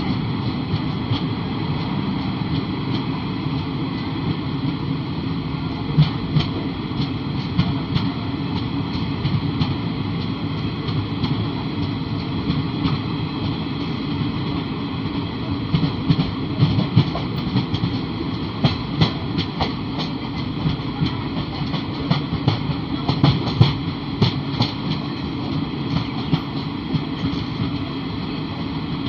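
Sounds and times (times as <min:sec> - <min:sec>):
passing train on next track: 0:00.0 - 0:29.0
train wheels rumbling on rails: 0:00.0 - 0:29.0
wheels clacking over rail joints: 0:05.7 - 0:28.4.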